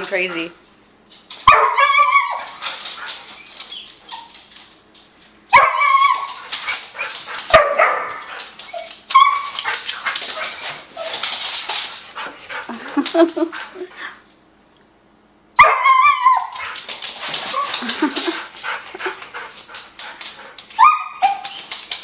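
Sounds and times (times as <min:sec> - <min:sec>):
dogs barking and yipping: 0:01.3 - 0:04.6, 0:05.5 - 0:13.8, 0:15.6 - 0:22.0
claws clicking and scuffling: 0:06.0 - 0:13.8.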